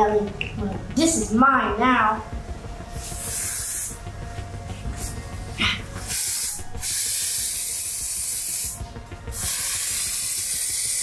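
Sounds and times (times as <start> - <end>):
aerosol spray can hissing: 3.0 - 4.0, 6.0 - 8.8, 9.4 - 11.0.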